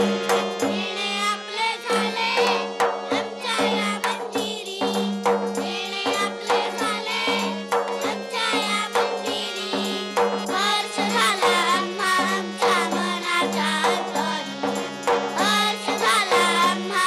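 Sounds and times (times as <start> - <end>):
tabla strokes: 0.0 - 1.2, 2.2 - 17.0
held drone note: 0.0 - 4.2
children singing: 0.0 - 17.0.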